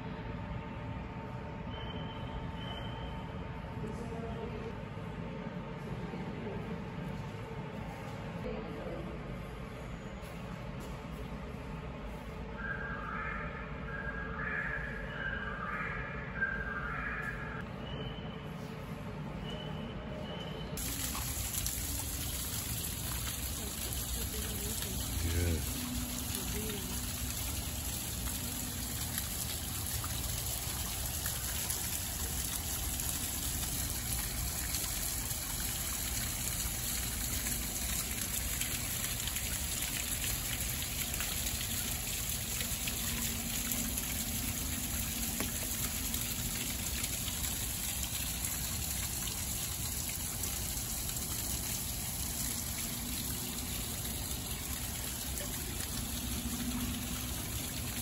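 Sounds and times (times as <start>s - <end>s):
water splashing into a pond: 20.8s - 58.0s.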